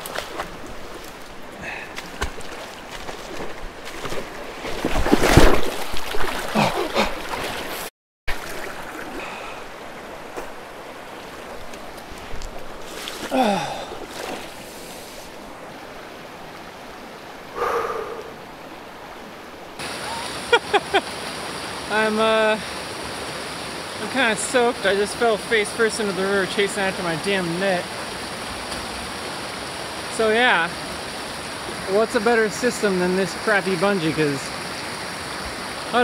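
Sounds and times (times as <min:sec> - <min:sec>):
loud splashing: 0:00.0 - 0:09.7, 0:12.8 - 0:15.0
creek water rushing over rocks: 0:00.0 - 0:36.0.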